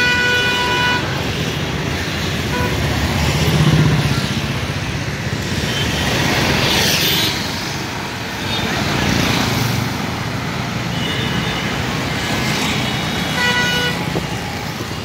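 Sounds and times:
vehicle horn: 0:00.0 - 0:01.2, 0:02.5 - 0:02.8, 0:13.3 - 0:14.1
city road traffic: 0:00.0 - 0:15.0.

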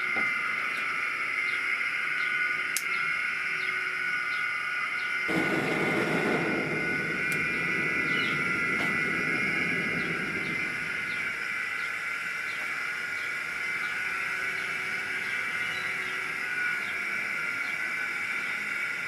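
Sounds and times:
blower whining: 0:00.0 - 0:19.0
gas flame rushing: 0:05.3 - 0:15.3.

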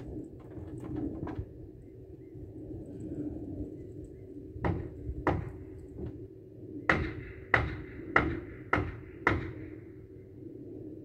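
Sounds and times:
hammer striking nails: 0:04.6 - 0:05.6, 0:06.9 - 0:09.7.

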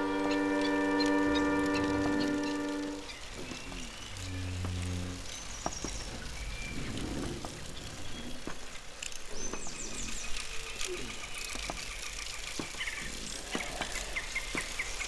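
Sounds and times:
bird chirps: 0:00.0 - 0:08.5
steady low hiss: 0:00.0 - 0:15.0.

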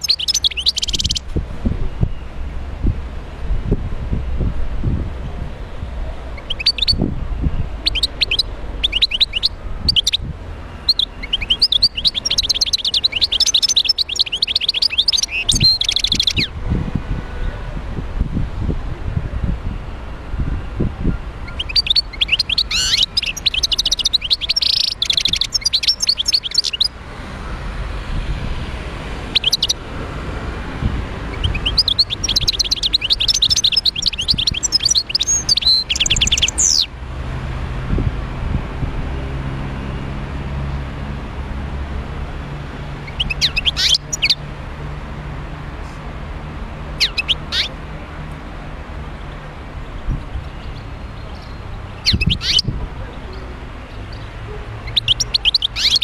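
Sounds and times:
goldfinch twittering song: 0:00.0 - 0:01.3, 0:06.4 - 0:07.0, 0:07.6 - 0:16.6, 0:21.4 - 0:27.0, 0:29.3 - 0:29.8, 0:31.3 - 0:36.9, 0:43.0 - 0:44.4, 0:46.9 - 0:47.8, 0:50.2 - 0:56.0.

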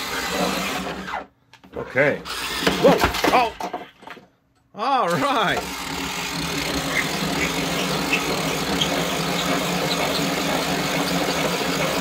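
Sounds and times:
toy electric motor whirring: 0:00.0 - 0:01.2, 0:02.2 - 0:03.3, 0:05.2 - 0:12.0.

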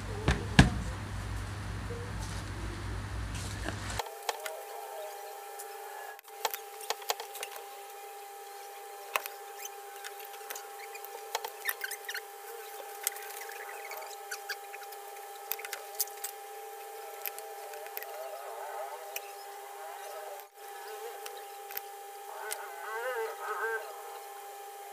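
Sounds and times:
faint steady hum: 0:00.0 - 0:24.9
small clicks taps and scratches: 0:05.6 - 0:18.4, 0:21.2 - 0:22.7.

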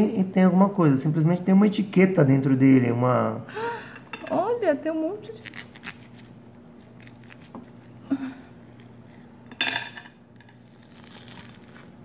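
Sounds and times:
low steady hum: 0:00.0 - 0:12.0
plastic wrapping crinkle: 0:10.5 - 0:12.0.

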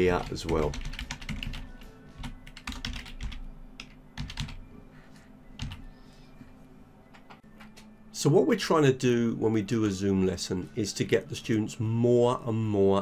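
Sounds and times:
keyboard typing: 0:00.0 - 0:04.6, 0:05.6 - 0:05.9.

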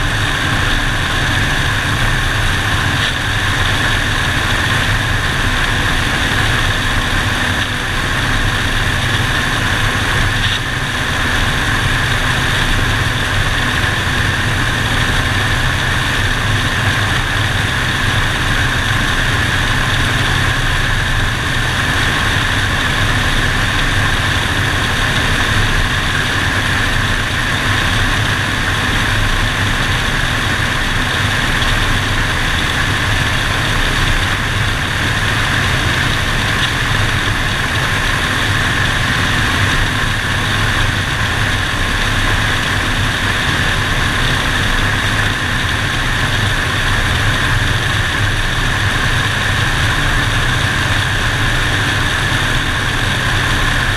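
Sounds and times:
propeller airplane engine droning: 0:00.0 - 0:53.9.

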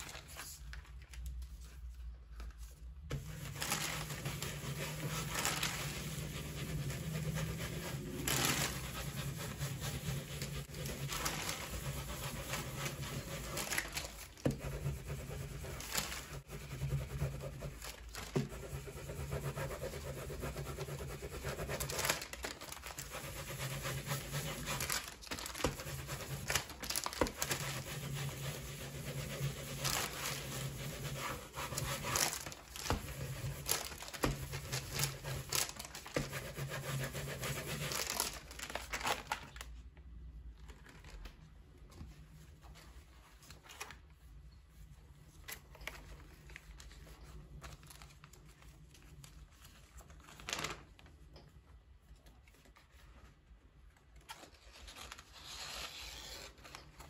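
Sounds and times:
scratchy rubbing on paper: 0:03.1 - 0:38.4.

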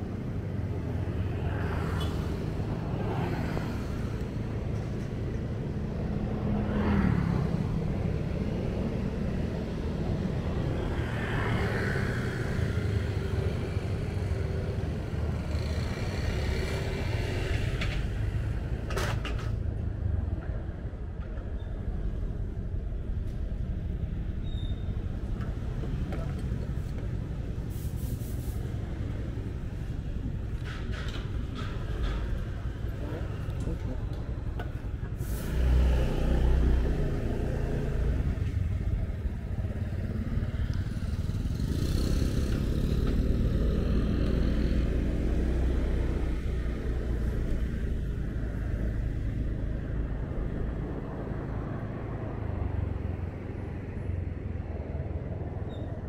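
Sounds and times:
traffic rumble: 0:00.0 - 0:56.0
vehicles passing: 0:00.0 - 0:56.0
sharp hiss-like noise: 0:27.6 - 0:28.8.

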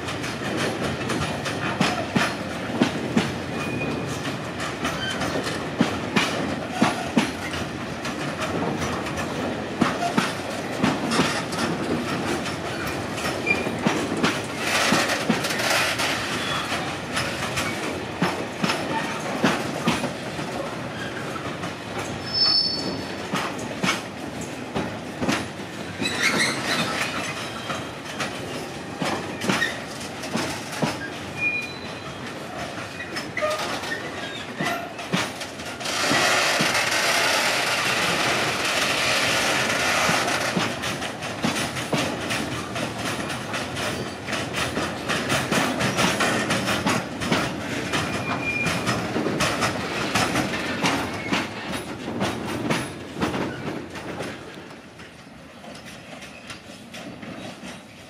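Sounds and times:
train wheels clattering over rail joints: 0:00.0 - 0:58.0
high wheel squeals: 0:22.2 - 0:23.0, 0:31.4 - 0:32.3.

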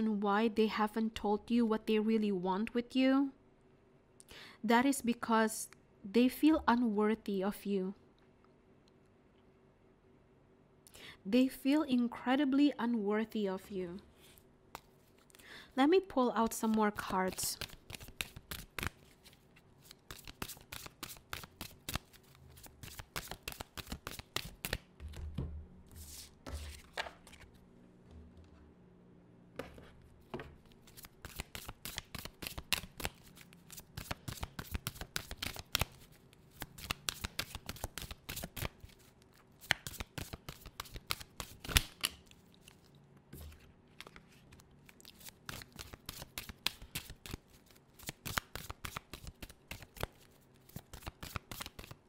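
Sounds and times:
cards being shuffled: 0:14.2 - 0:15.4, 0:16.4 - 0:27.6, 0:29.6 - 0:52.0.

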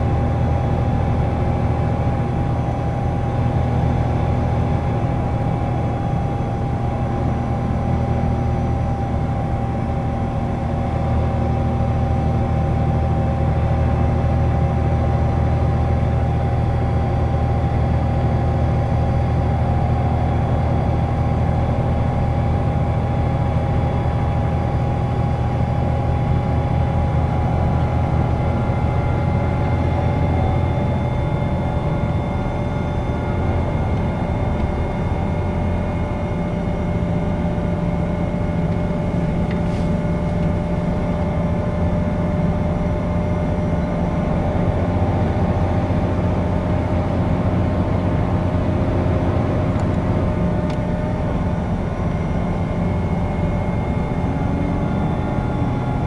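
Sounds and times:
bus engine drone: 0:00.0 - 0:56.0
road and tyre noise: 0:00.0 - 0:56.0
thin steady whine: 0:16.0 - 0:56.0.

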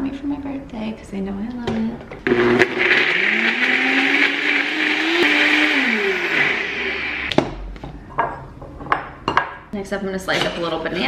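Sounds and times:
blender crushing frozen fruit: 0:02.2 - 0:07.4.

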